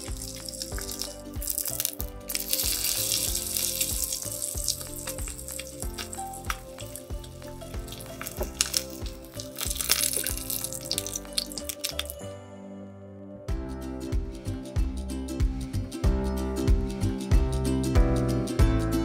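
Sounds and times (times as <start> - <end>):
oil sizzling in a wok: 0.0 - 12.2
background music: 0.0 - 19.0.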